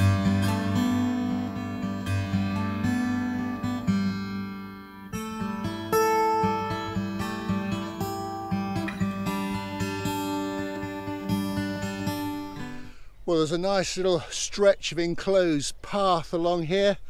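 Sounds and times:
acoustic guitar playing: 0.0 - 13.0.

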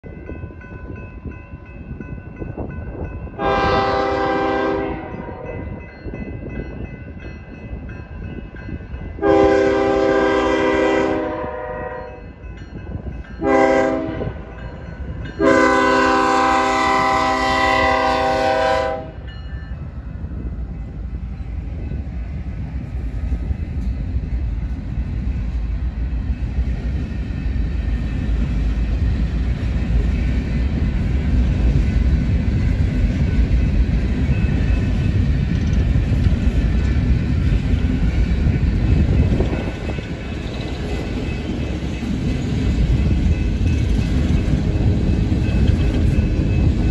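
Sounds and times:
train rumbling on rails: 0.0 - 46.9
locomotive horn blasts: 3.4 - 5.6, 9.2 - 12.2, 13.4 - 14.5, 15.4 - 19.3.

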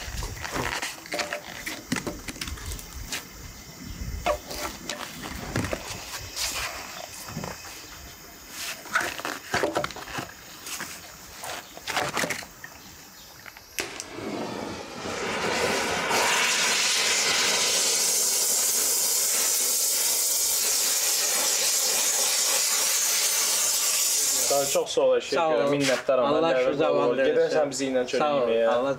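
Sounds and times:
gas torch flame hissing: 12.5 - 25.0
torch igniter click: 13.6 - 14.2.

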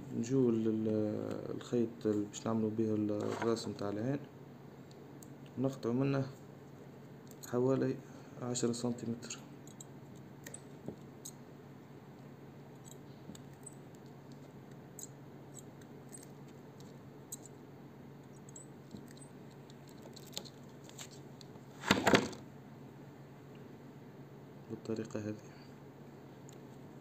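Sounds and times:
rustling scrape: 3.2 - 3.7.

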